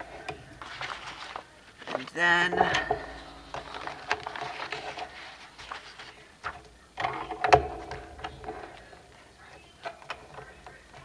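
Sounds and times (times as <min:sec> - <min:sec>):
card rustling and scraping: 0:00.5 - 0:06.6.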